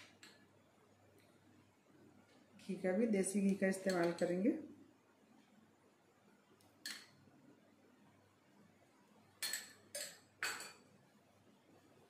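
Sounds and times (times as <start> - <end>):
kitchen utensils clinking: 9.4 - 10.8.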